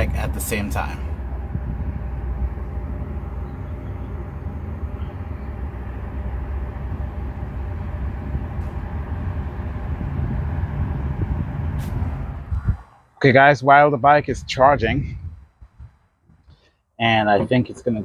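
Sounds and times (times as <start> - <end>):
faint steady hum: 0.0 - 11.6
low outdoor background rumble: 0.0 - 18.0.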